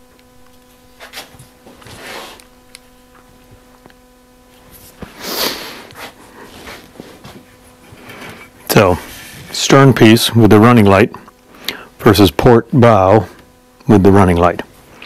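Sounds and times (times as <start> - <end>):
steady low hum: 0.0 - 15.0
rustling and shuffling of person moving: 0.3 - 10.3.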